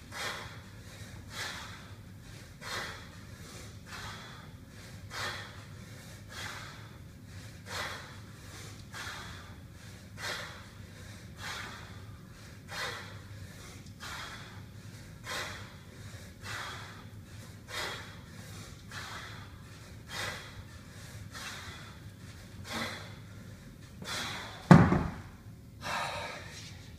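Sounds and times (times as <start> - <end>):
forceful breaths: 0.0 - 26.9
kettlebell thud on wooden floor: 24.7 - 25.3.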